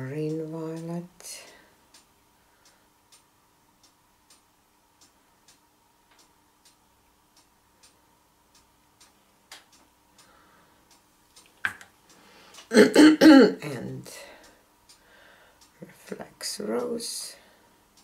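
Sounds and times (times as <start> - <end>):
faint regular ticking: 0.0 - 18.0
faint steady hum: 0.0 - 18.0.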